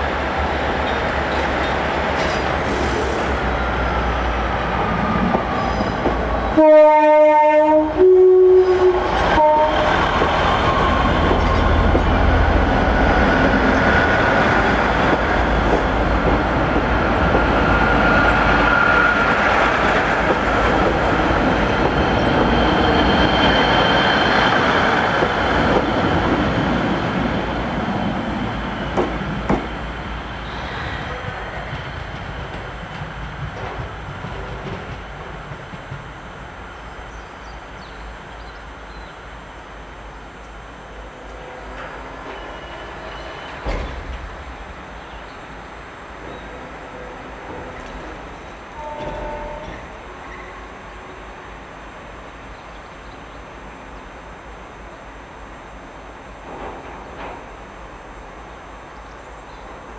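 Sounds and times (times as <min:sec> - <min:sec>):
diesel train engine: 0:00.0 - 0:59.9
two-note train horn: 0:06.6 - 0:10.0, 0:48.8 - 0:49.8.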